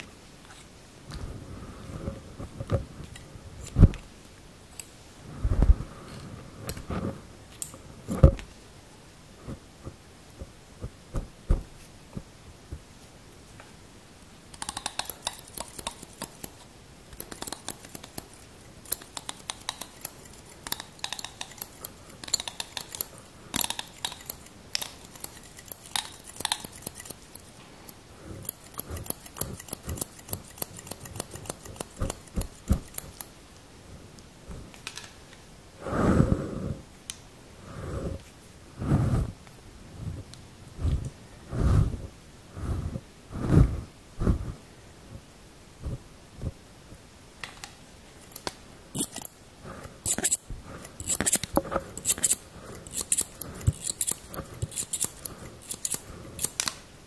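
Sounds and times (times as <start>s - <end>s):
scissors snipping: 14.5s - 33.3s, 48.3s - 49.4s, 50.0s - 56.8s.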